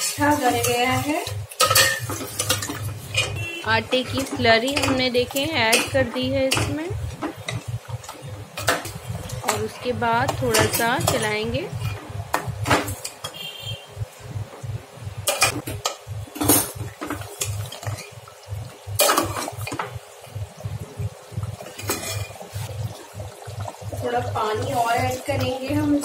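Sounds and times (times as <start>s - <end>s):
metal ladle scraping a pot: 21.8s - 22.7s.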